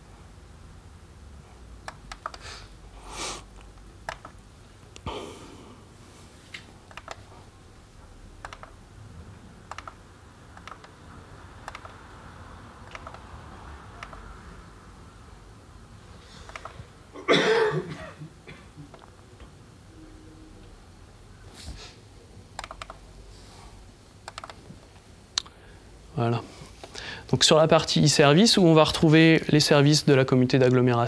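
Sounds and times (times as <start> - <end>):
low room hum: 0.0 - 31.0
laptop keys typing: 1.8 - 2.5, 3.7 - 4.4, 6.8 - 7.4, 8.3 - 8.8, 9.6 - 11.0, 11.6 - 12.1, 12.8 - 13.3, 13.9 - 14.3, 16.4 - 16.8, 22.5 - 23.0, 24.2 - 24.7.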